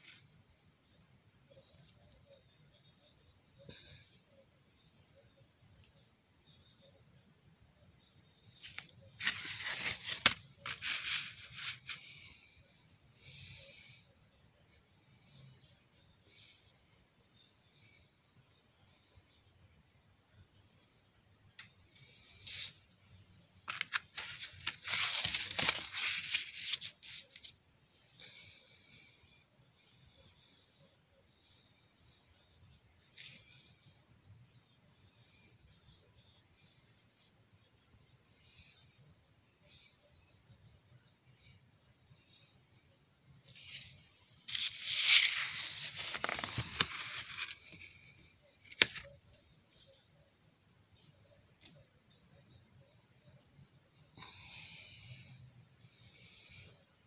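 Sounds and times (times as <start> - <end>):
stiff paper pages rustling: 8.6 - 12.3, 23.6 - 27.5, 43.5 - 49.2.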